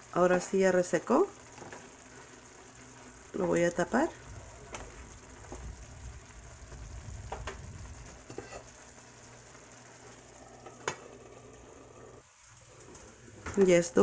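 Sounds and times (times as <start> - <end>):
rice sizzling in a skillet: 0.0 - 14.0
spoon stirring and scraping: 8.2 - 8.8.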